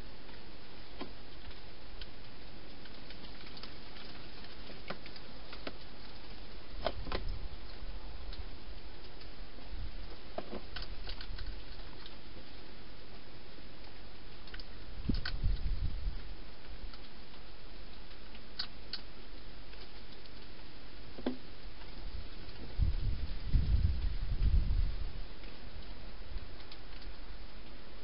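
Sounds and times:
steady hiss: 0.0s - 28.0s
hedgehog crunching food: 10.5s - 12.2s.

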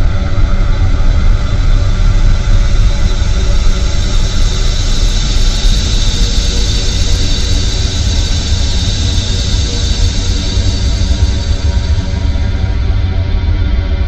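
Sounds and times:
deep rumble and hiss: 0.0s - 14.0s
bright high hiss: 3.5s - 12.7s.

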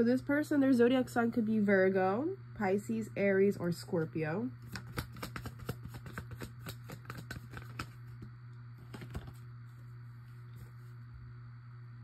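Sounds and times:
steady low hum: 0.0s - 12.0s
cards being handled: 4.6s - 9.5s.

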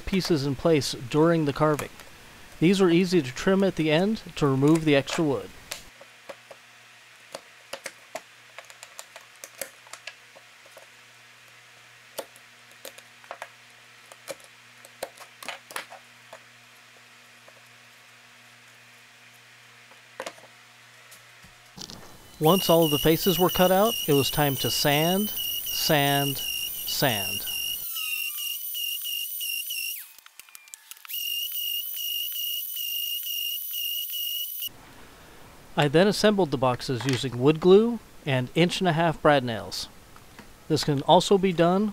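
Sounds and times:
orbital sander whining: 22.4s - 30.3s, 30.9s - 34.7s.

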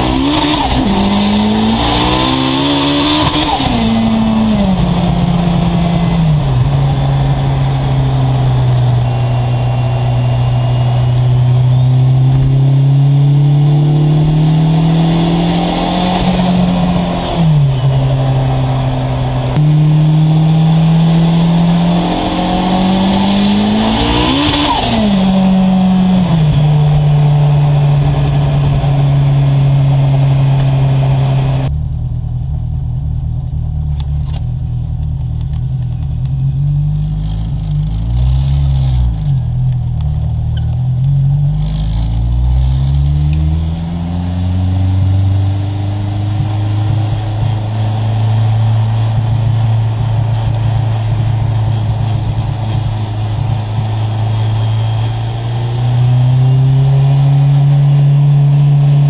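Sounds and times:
high turbo whistle: 0.0s - 31.7s, 43.0s - 57.5s
car engine revving: 0.0s - 59.0s.

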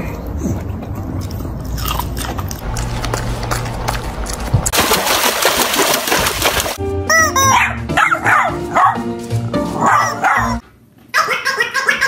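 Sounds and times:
background music: 6.8s - 10.6s
small dog barking: 7.5s - 9.0s, 9.8s - 10.6s.

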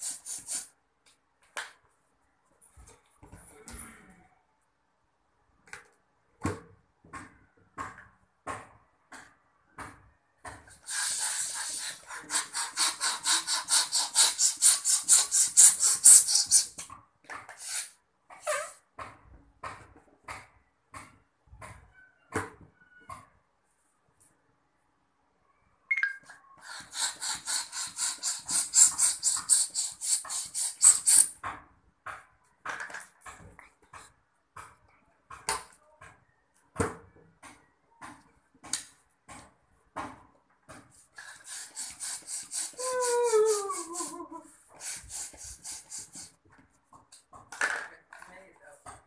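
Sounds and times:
quick pump strokes hissing: 0.0s - 0.7s, 10.7s - 16.9s, 17.5s - 18.0s, 26.6s - 31.4s, 41.2s - 46.4s
long hiss of air: 10.8s - 16.6s, 41.4s - 42.9s, 44.8s - 46.3s.

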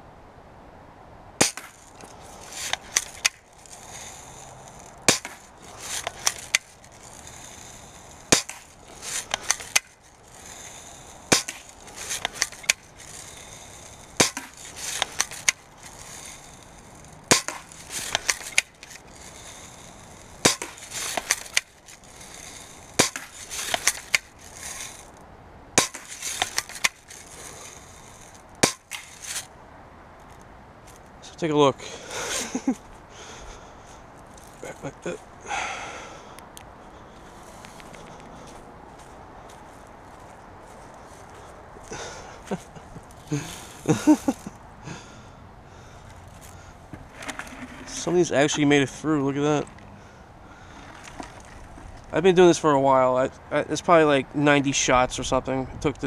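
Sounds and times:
air rifle shots: 1.4s - 1.8s, 5.0s - 6.6s, 8.3s - 9.9s, 10.8s - 19.8s, 20.4s - 25.0s, 25.8s - 27.7s, 28.6s - 29.4s.

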